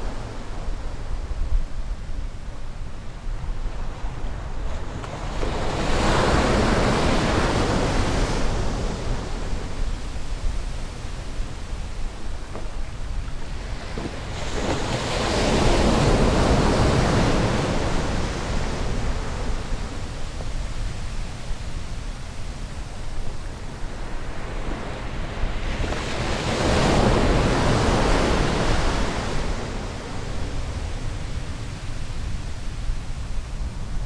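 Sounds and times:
low wind rumble on microphone: 0.0s - 34.0s
surf breaking on sand beach: 12.2s - 22.3s.

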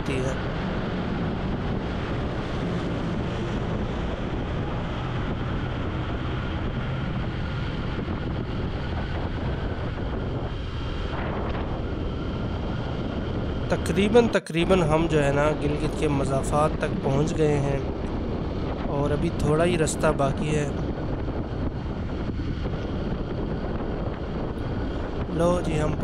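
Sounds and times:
motorcycle running: 0.0s - 13.7s, 20.8s - 25.3s
wind on microphone: 0.0s - 26.0s.

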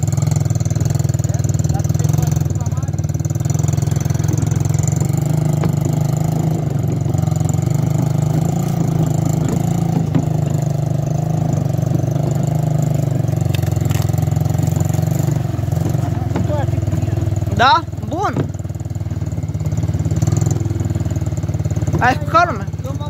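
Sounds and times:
atv engine running: 0.0s - 23.0s.

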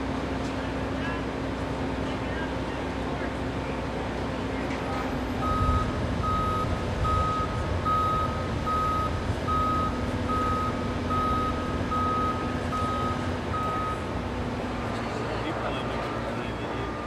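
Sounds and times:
diesel engine rumble: 0.0s - 17.0s
backup alarm beeping: 5.4s - 14.1s.

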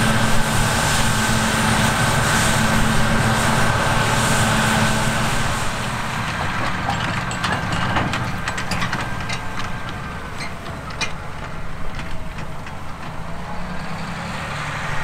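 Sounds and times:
combine harvester running: 0.0s - 15.0s
sharp clicks and rattles: 6.3s - 13.2s.

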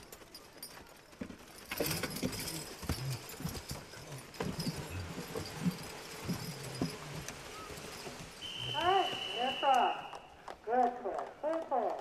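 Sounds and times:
harness chains jangling: 0.0s - 8.5s
horse hooves on dirt: 0.0s - 12.0s.

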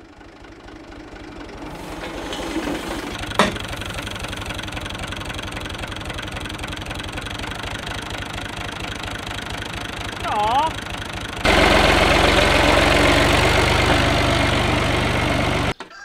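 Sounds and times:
tractor diesel engine running: 0.0s - 15.8s.

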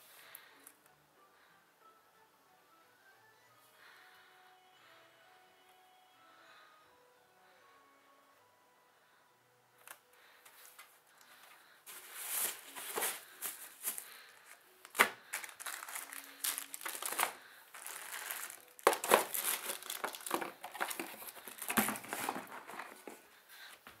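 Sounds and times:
plastic wrap crinkling: 11.9s - 23.2s
cardboard box handling: 14.9s - 23.2s.

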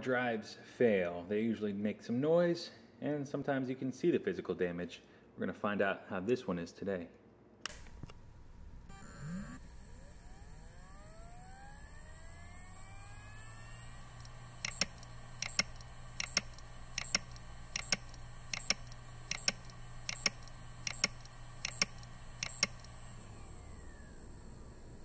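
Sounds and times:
hard drive spinning with whine: 8.1s - 25.0s
hard drive heads clicking: 14.0s - 23.2s.

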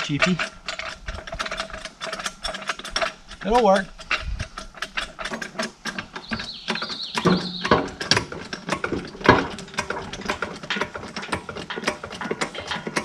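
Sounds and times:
hand ratchet clicking: 0.0s - 13.0s.

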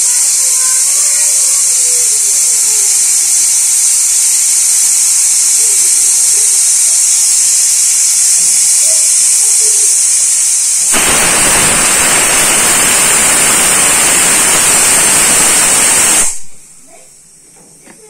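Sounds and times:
pressure cooker hissing steam: 0.0s - 17.3s
pressure cooker whistle whoosh: 2.9s - 16.5s.

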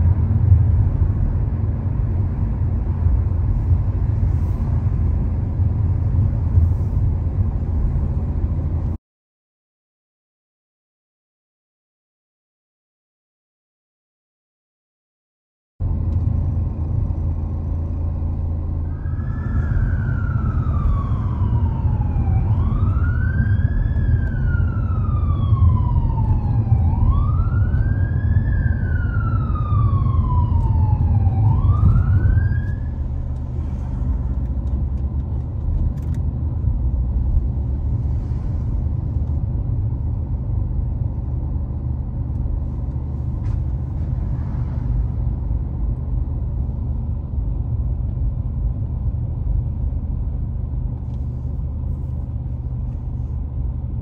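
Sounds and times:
car driving rumble: 0.0s - 9.0s, 15.8s - 54.0s
emergency siren wailing: 18.9s - 33.4s.

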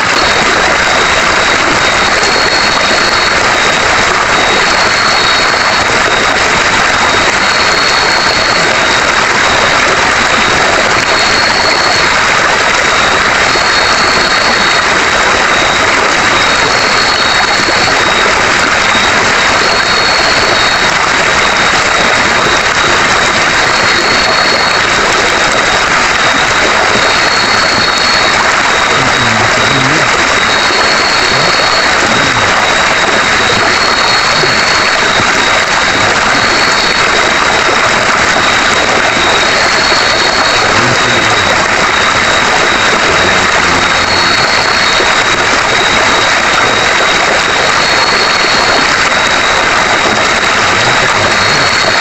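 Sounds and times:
pulsing insect note: 27.0s - 32.8s.

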